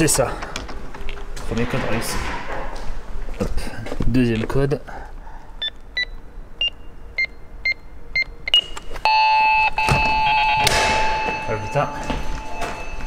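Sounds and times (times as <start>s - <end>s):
keypad beeping: 5.6s - 13.0s
door lock electronic buzz: 9.8s - 11.3s.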